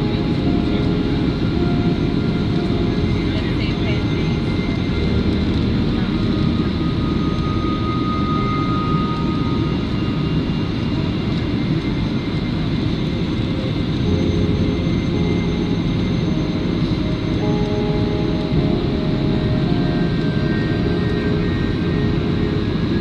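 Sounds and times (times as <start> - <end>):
jet airliner cabin noise: 0.0 - 23.0.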